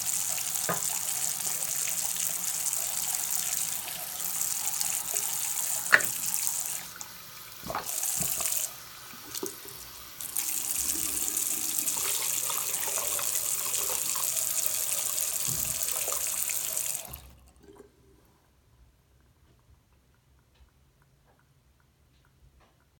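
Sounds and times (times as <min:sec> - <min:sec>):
faucet water running into sink: 0:00.0 - 0:17.8.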